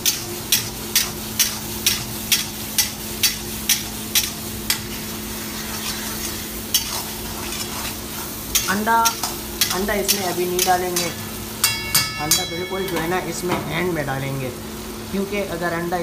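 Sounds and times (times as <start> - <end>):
metal spoon scraping a wok: 4.2 - 11.2.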